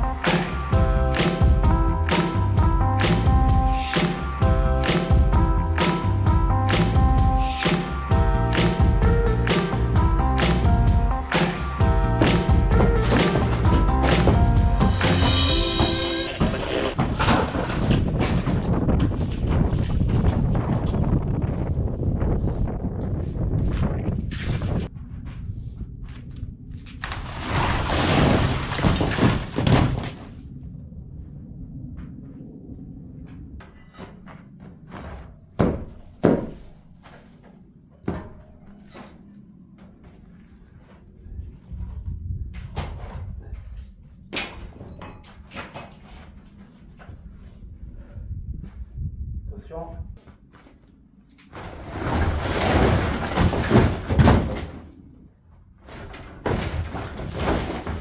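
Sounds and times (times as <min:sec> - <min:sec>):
heavy knocks: 0:11.8 - 0:18.8, 0:35.6 - 0:36.7
floor demolition thuds and knocks: 0:11.9 - 0:20.6, 0:27.0 - 0:30.4, 0:33.6 - 0:36.8, 0:51.5 - 0:55.0, 0:55.8 - 0:58.0
rubble scraping and crashing down: 0:12.1 - 0:20.2, 0:26.9 - 0:30.4, 0:51.5 - 0:55.2, 0:55.8 - 0:58.0.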